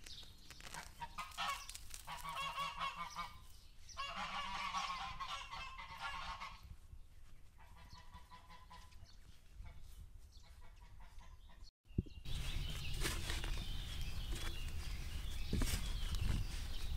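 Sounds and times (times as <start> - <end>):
fowl calling: 0.7 - 6.6.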